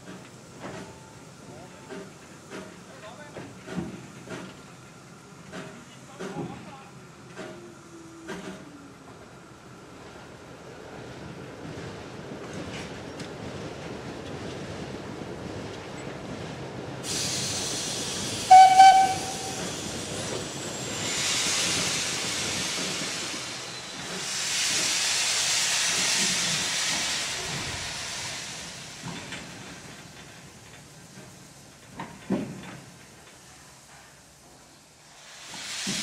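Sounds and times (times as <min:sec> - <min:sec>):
steam hissing: 0:17.0 - 0:36.0
steam locomotive whistle: 0:18.4 - 0:19.7.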